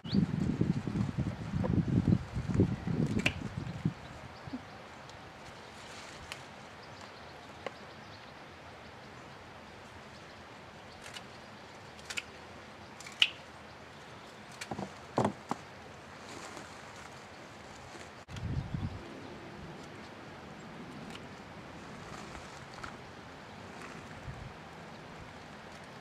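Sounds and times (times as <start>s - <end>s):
steady outdoor hiss: 0.0s - 26.0s
stems and leaves rustling: 0.0s - 26.0s
pods snapping off: 12.0s - 12.3s, 13.0s - 13.4s.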